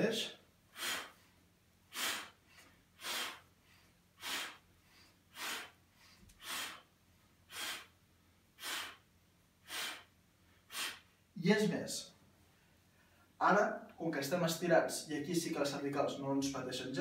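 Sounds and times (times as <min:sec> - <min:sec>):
man exhaling forcefully: 0:00.7 - 0:01.2, 0:01.9 - 0:02.4, 0:03.0 - 0:03.5, 0:04.2 - 0:04.7, 0:05.3 - 0:05.8, 0:06.4 - 0:06.9, 0:07.5 - 0:08.0, 0:08.6 - 0:10.1, 0:10.7 - 0:11.1.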